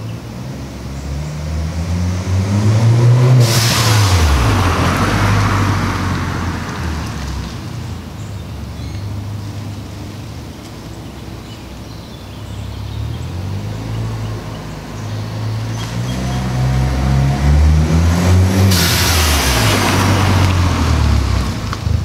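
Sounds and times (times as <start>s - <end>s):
car engine accelerating past: 0.9s - 7.8s, 12.9s - 22.0s
blow-off valve whoosh: 3.0s - 6.9s, 18.2s - 21.2s.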